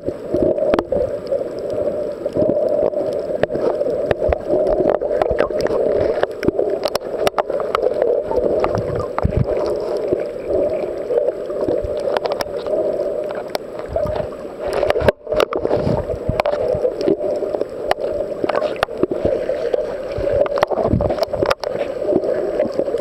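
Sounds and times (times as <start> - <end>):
clicks and crackles: 0.0 - 23.0
muffled underwater rush: 0.0 - 23.0.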